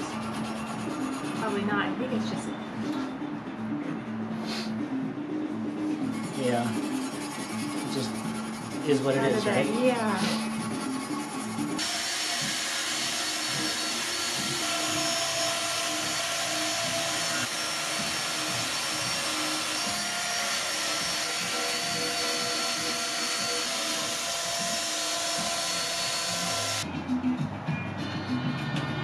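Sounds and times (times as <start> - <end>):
drill wire brush on metal: 6.1 - 26.8.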